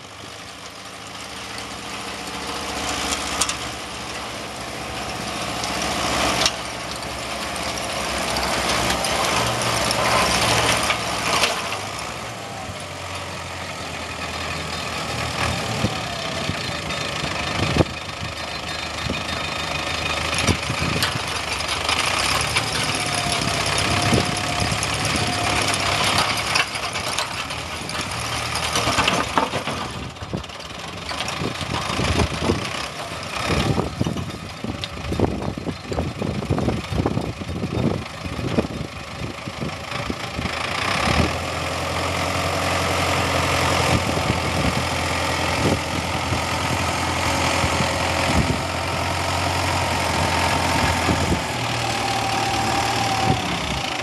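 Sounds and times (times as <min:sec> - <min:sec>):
tractor engine under load: 0:00.0 - 0:54.0
soil grinder clattering: 0:18.4 - 0:35.3.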